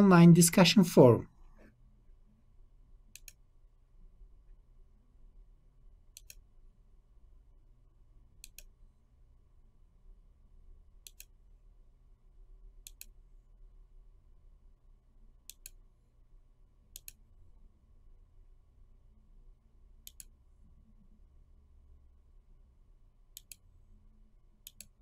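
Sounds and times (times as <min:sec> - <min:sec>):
faint low hum: 0:00.0 - 0:25.0
computer mouse clicking: 0:03.1 - 0:03.5, 0:06.1 - 0:06.5, 0:08.4 - 0:08.8, 0:11.0 - 0:11.4, 0:12.8 - 0:13.2, 0:15.4 - 0:15.8, 0:16.9 - 0:17.2, 0:20.0 - 0:20.4, 0:23.3 - 0:23.7, 0:24.6 - 0:25.0.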